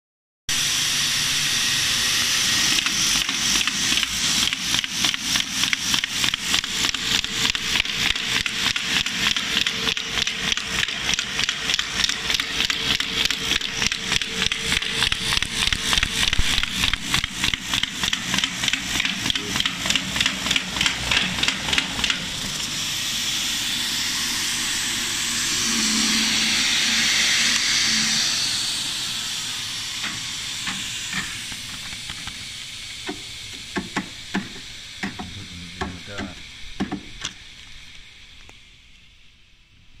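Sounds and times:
steady hiss: 0:11.6 - 0:40.0.

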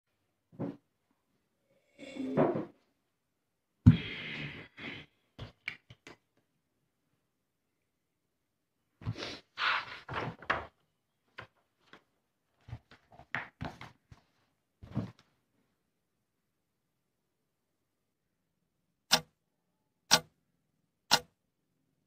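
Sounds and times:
paper pages rustling: 0:09.6 - 0:14.4.

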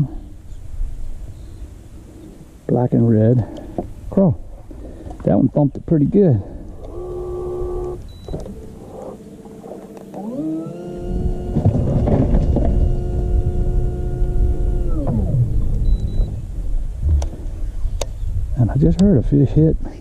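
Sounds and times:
electric trolling motor whining: 0:06.6 - 0:16.5
low rumble: 0:11.0 - 0:19.4.

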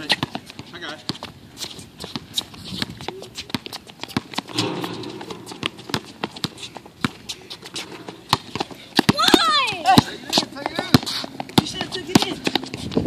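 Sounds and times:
sneakers stepping on concrete: 0:00.0 - 0:13.0
basketball bouncing on concrete: 0:02.1 - 0:13.0.

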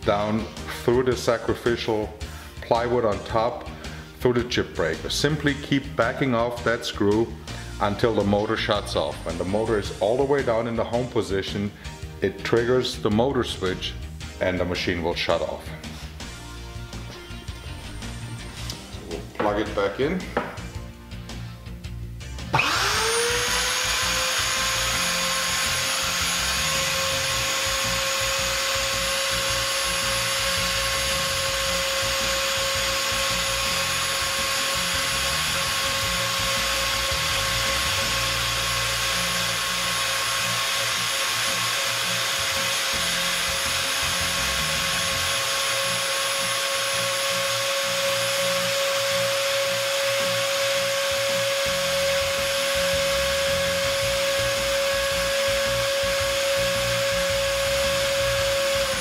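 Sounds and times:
router motor whining: 0:22.5 - 0:59.0.

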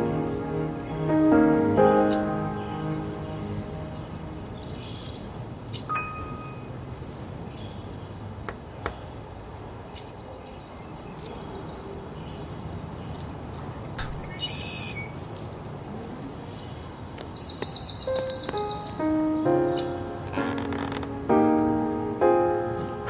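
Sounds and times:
bird chirps: 0:14.2 - 0:20.0.

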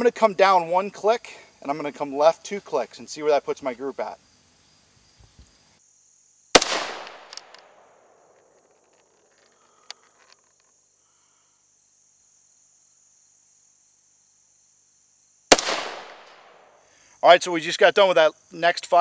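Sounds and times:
rifle shot echoing: 0:06.6 - 0:08.4, 0:15.5 - 0:16.7
faint clicks: 0:08.4 - 0:10.8.

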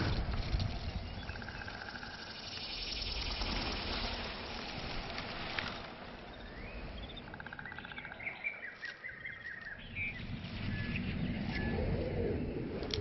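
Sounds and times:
small birds chirping: 0:00.8 - 0:13.0.

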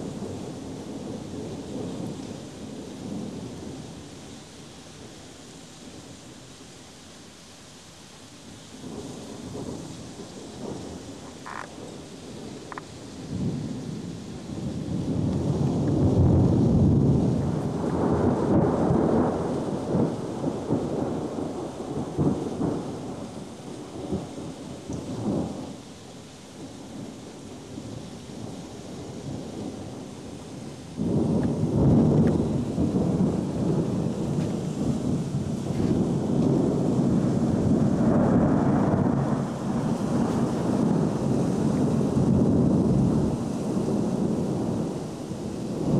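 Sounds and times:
rain falling: 0:00.0 - 0:45.9
thunder rumbling: 0:08.8 - 0:25.8, 0:26.6 - 0:45.9.

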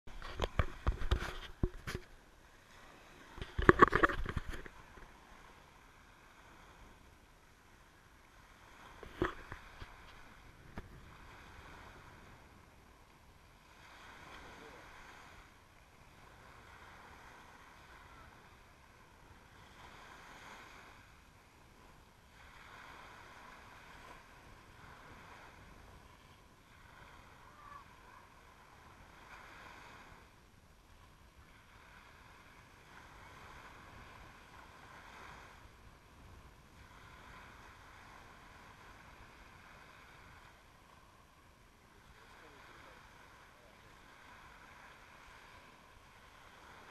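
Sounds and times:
small waves washing on sand: 0:00.1 - 0:46.9.

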